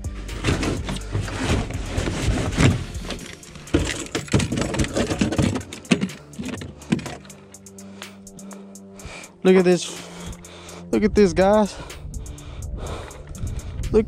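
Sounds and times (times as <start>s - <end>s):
knocks and rattles on boat deck: 0.4s - 7.3s.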